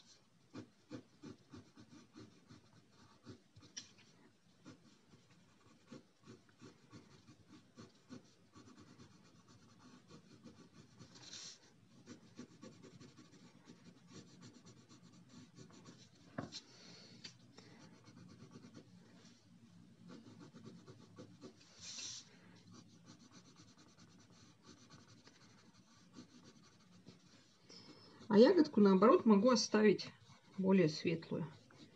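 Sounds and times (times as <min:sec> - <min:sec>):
pencils scratching on paper: 0:00.0 - 0:19.4, 0:20.0 - 0:31.9
soft hisses: 0:21.6 - 0:22.4.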